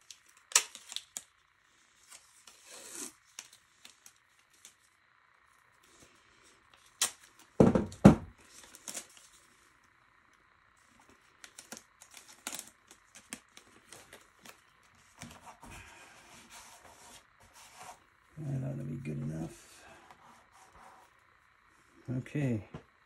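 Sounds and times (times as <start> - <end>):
tape tearing and rustling: 0.0 - 4.9, 6.7 - 7.6, 8.4 - 9.5, 10.8 - 15.5.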